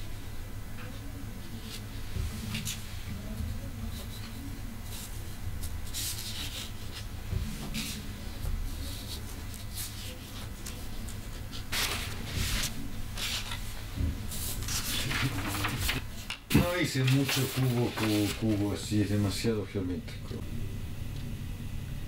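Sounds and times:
steady low hum: 0.0 - 22.0
paper sheets rustling: 3.9 - 18.8.

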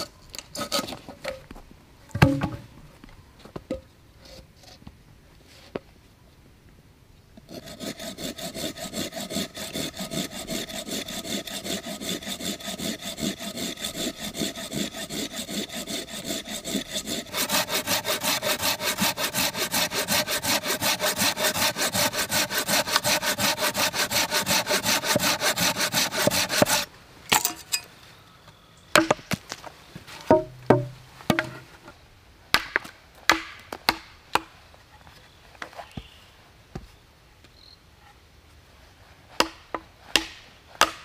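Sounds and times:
hand saw cutting log: 7.5 - 26.9.

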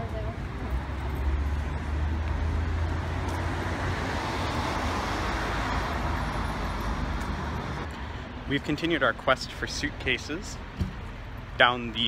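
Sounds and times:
car passing: 0.4 - 8.7.

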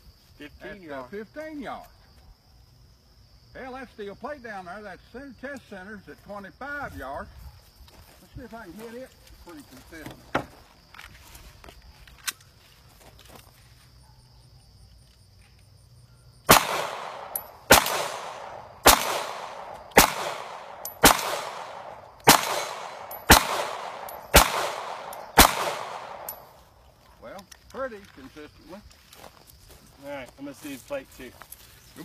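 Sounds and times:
insect chirring: 0.0 - 32.0
pistol shots echoing: 16.5 - 26.5.

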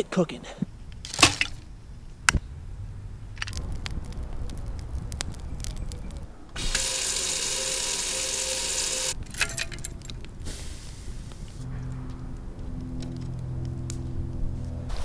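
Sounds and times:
wood fire crackling: 0.7 - 14.7
metal handle clinking on hook: 9.2 - 10.2.

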